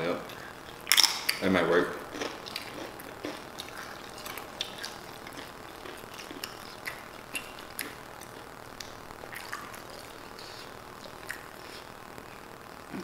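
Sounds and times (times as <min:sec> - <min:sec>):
chewing and lip smacks: 0:02.1 - 0:11.9.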